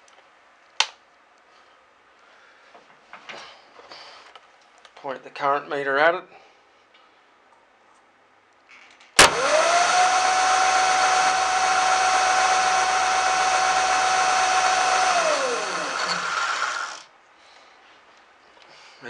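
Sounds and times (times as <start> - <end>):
electric motor whine: 9.2 - 17.0.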